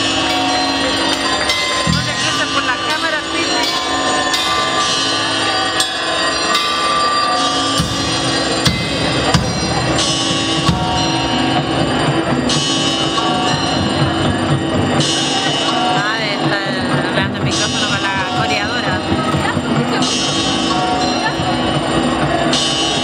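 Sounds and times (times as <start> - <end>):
cymbal hits: 0.0 - 13.8.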